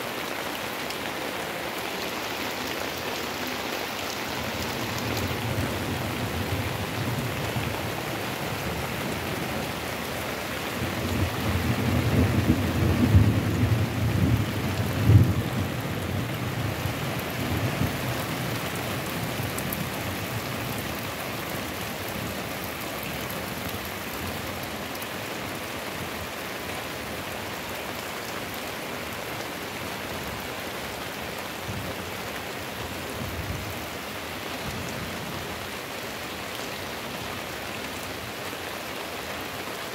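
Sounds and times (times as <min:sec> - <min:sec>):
heavy rain pouring: 0:00.0 - 0:39.9
low rumble of thunder: 0:10.8 - 0:18.2.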